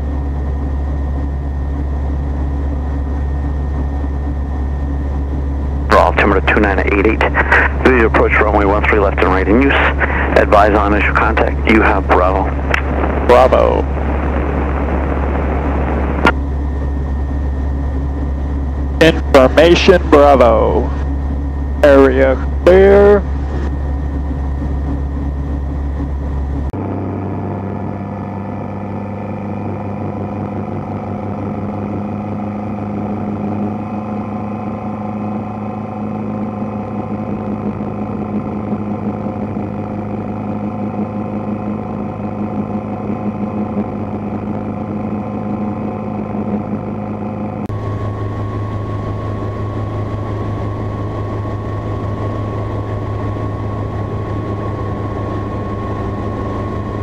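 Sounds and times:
helicopter engine and rotor drone: 0.0s - 57.0s.

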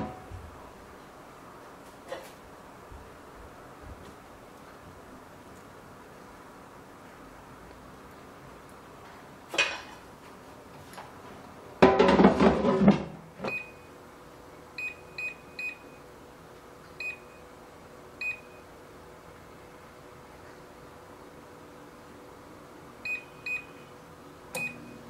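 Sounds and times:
air fryer clatter and clunk: 9.5s - 10.0s, 11.8s - 13.7s.

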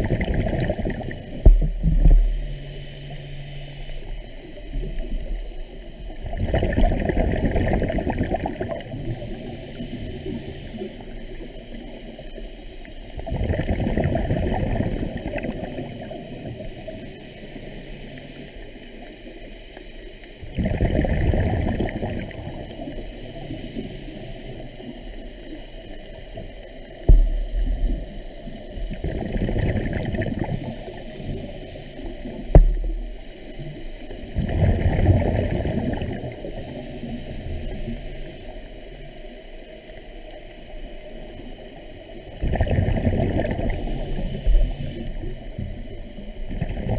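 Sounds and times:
underwater breath bubbles: 0.0s - 11.9s, 13.2s - 18.6s, 20.4s - 25.6s, 26.2s - 38.8s, 42.3s - 46.9s
sharp knocks: 32.6s - 32.9s.

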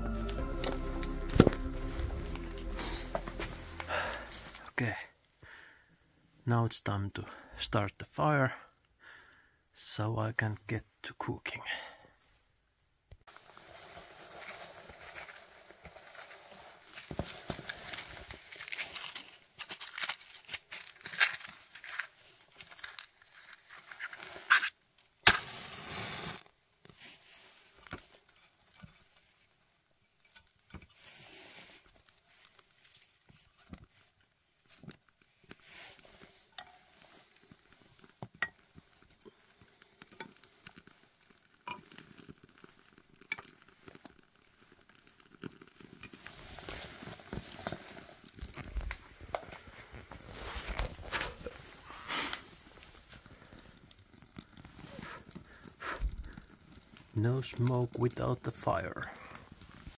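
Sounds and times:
rustling: 0.0s - 4.7s, 13.3s - 57.7s
campfire crackling: 0.0s - 6.4s, 13.2s - 59.9s.

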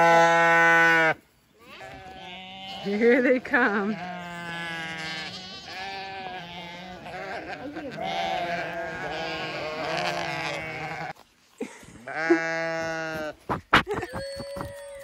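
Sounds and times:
sheep bleating: 0.0s - 11.2s, 12.1s - 13.4s.

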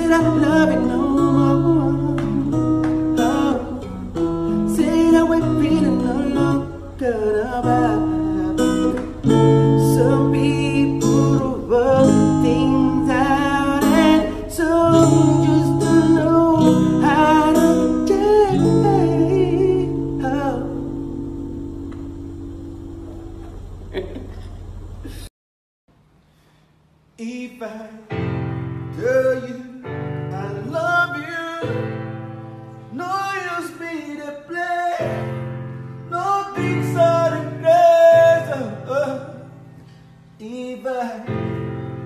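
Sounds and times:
person singing wordlessly: 0.0s - 21.0s, 27.2s - 28.3s, 29.0s - 32.0s, 32.9s - 35.3s, 36.1s - 39.5s, 40.4s - 41.5s
acoustic guitar chords: 0.0s - 25.3s, 28.1s - 42.0s.

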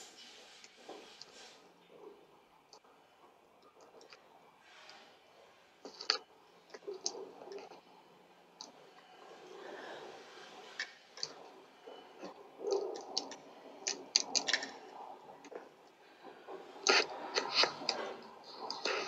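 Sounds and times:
scraping noises: 8.7s - 19.0s.

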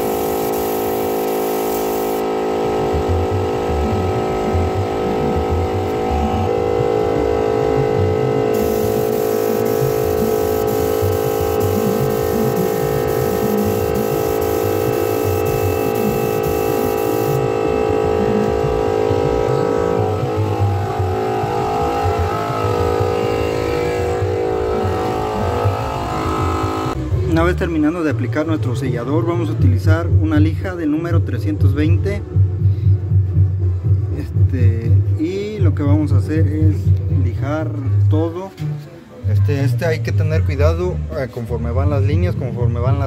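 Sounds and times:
spray gun hissing: 0.0s - 2.2s, 8.6s - 17.4s
air compressor motor running: 0.0s - 27.0s.

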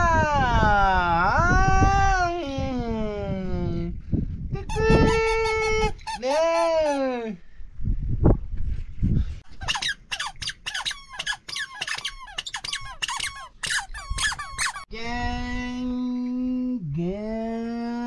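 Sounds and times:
baby toy squeaking: 4.7s - 6.7s, 9.6s - 14.9s.

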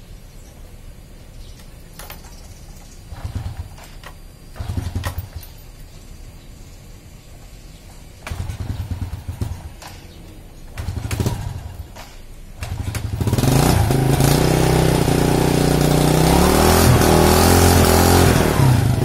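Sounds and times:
motorcycle kick-starting: 1.6s - 6.1s, 7.7s - 19.0s
motorcycle engine idling: 2.0s - 6.1s, 7.5s - 16.6s.

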